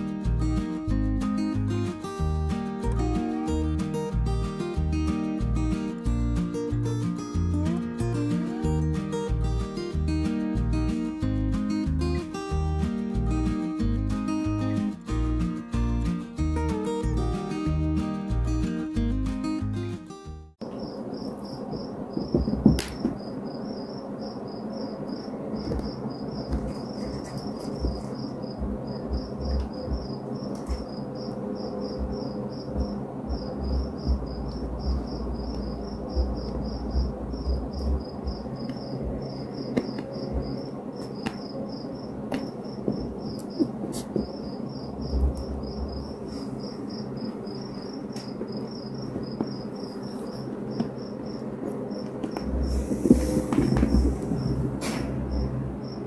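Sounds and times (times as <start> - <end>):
insect-like chirping: 20.6 - 56.0
low rumble: 26.6 - 39.6.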